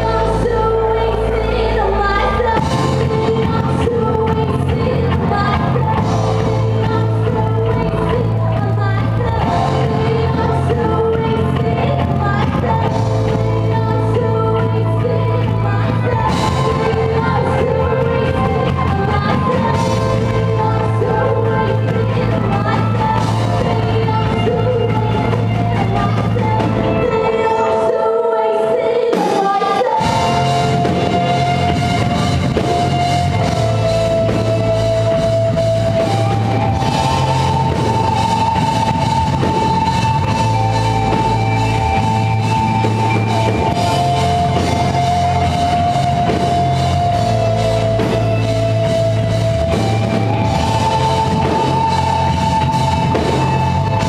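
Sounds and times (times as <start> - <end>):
drum kit: 0.0 - 27.7, 29.0 - 54.0
bass guitar: 0.0 - 27.8, 29.9 - 54.0
electric guitar: 0.0 - 54.0.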